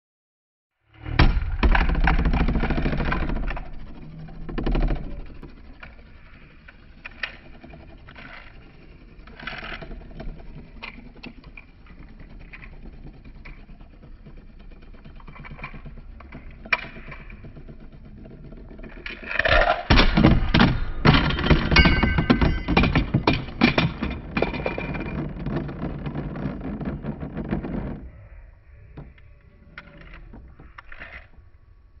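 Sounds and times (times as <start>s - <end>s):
spinning tops clashing metallically: 20.6s - 25.1s.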